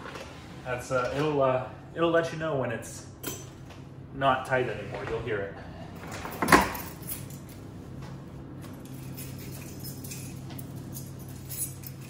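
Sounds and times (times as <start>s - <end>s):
steady low hum: 0.0s - 12.0s
gear clinking: 8.7s - 12.0s.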